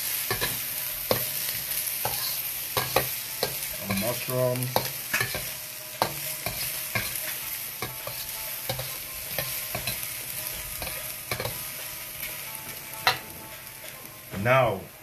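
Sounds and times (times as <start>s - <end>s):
vegetables sizzling in oil: 0.0s - 15.0s
metal ladle scraping a wok: 0.3s - 3.1s.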